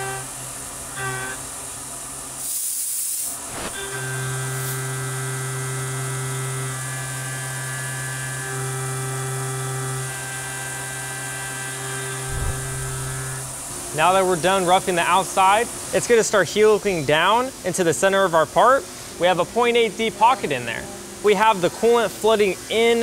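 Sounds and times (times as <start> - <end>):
short loud hiss: 2.4 - 3.9, 12.2 - 14.0.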